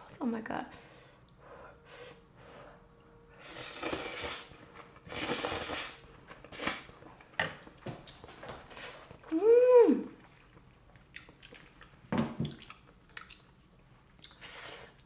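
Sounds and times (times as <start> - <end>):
slurping noodles: 3.4 - 6.9
person humming: 9.3 - 10.2.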